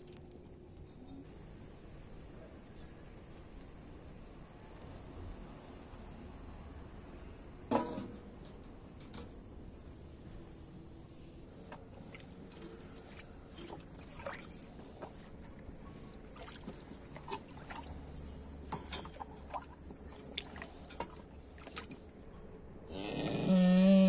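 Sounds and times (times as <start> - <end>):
cows slurping water: 11.4 - 22.2.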